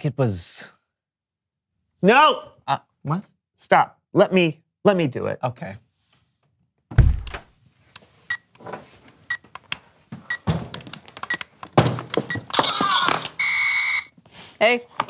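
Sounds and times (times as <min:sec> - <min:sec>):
deep thud: 0:06.9 - 0:07.5.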